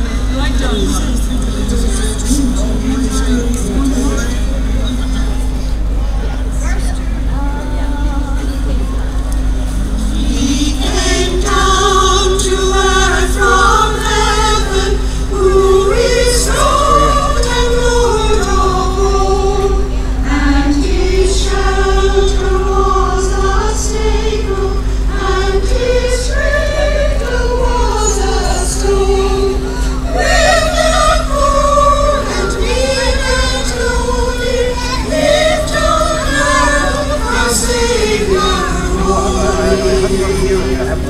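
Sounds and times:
steady low hum: 0.0s - 41.0s
women's choir singing: 9.5s - 41.0s.

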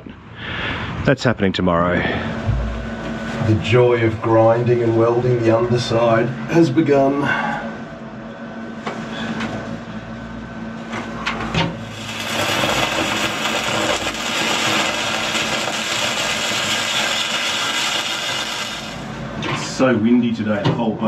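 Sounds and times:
angle grinder grinding steel: 11.9s - 19.1s.

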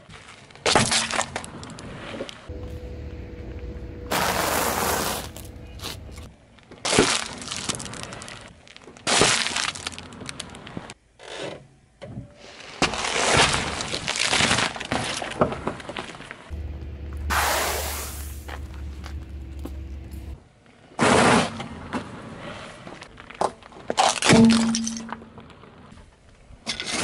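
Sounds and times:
car tyre crunching food: 2.5s - 6.3s, 16.5s - 20.4s.

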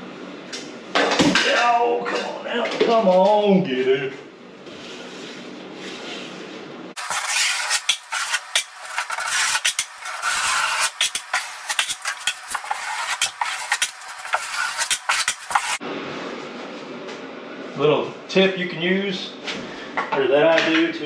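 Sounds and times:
trowel scraping mortar: 7.0s - 15.8s.

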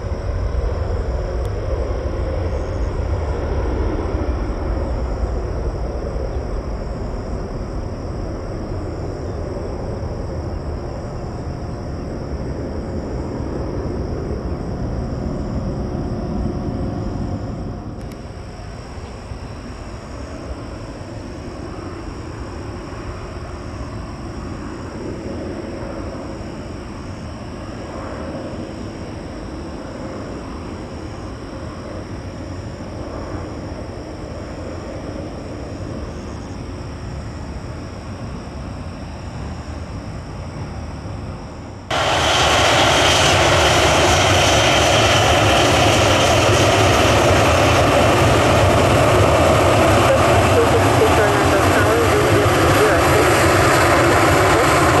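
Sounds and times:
jet engine rumble: 0.0s - 55.0s.

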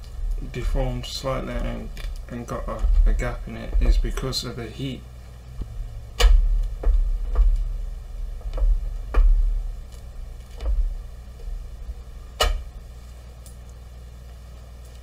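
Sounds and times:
rubber mould knocks and thumps: 5.6s - 7.7s.

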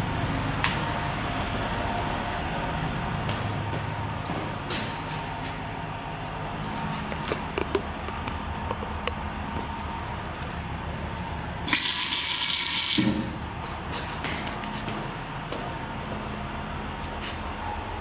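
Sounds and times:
faucet running water into sink: 11.7s - 13.4s.

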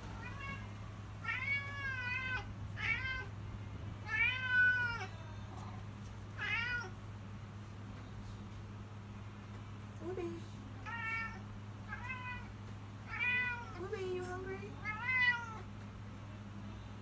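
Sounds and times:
steady low hum: 0.0s - 17.0s
cat meowing: 0.2s - 3.3s, 4.0s - 5.1s, 6.4s - 7.0s, 10.8s - 13.8s, 14.8s - 15.7s.

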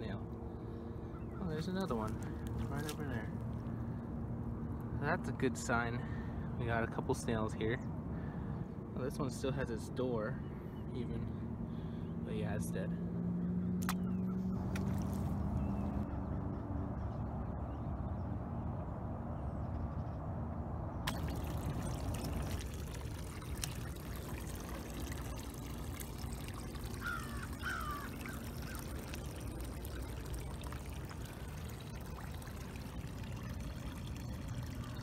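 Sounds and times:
creek water trickling: 0.0s - 16.6s, 21.1s - 35.0s
bird calling: 0.6s - 2.6s, 26.9s - 30.4s.

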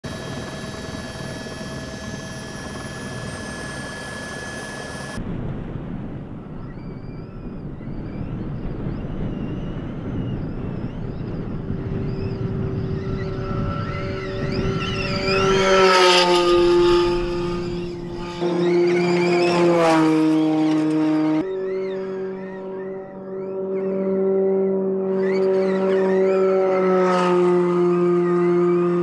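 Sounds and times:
car rushing with high whine: 0.0s - 5.2s, 8.1s - 29.0s
steady held tones: 11.3s - 26.6s.

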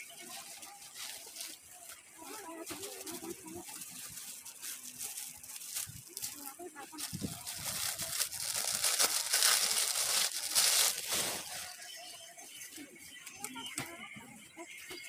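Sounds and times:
plastic bags crinkling: 0.0s - 11.9s.

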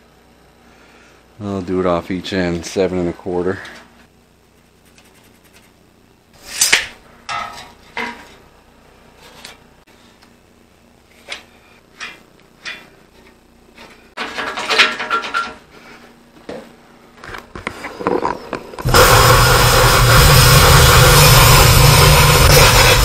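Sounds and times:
steel knocking and clattering: 7.3s - 8.3s, 14.2s - 15.6s
angle grinder cutting steel: 18.8s - 23.0s.

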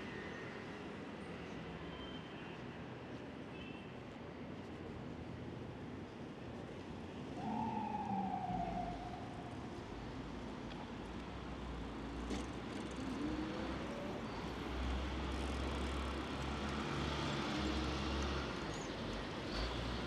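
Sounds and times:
vehicles passing: 7.3s - 20.0s.

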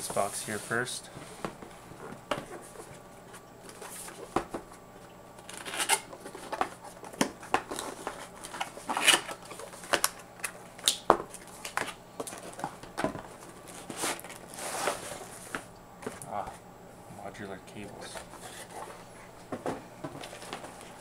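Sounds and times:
cardboard scraping and rubbing: 0.0s - 0.9s, 13.7s - 15.6s
boxes sliding: 0.0s - 1.0s, 13.8s - 15.6s.

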